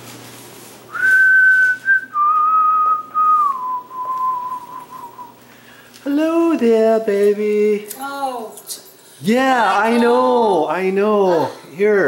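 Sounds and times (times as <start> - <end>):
person whistling: 0.9 - 5.4.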